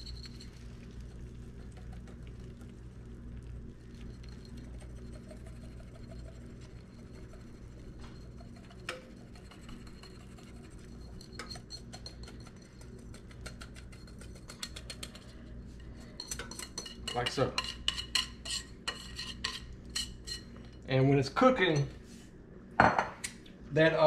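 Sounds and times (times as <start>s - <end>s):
whisk scraping a mixing bowl: 4.0s - 20.6s.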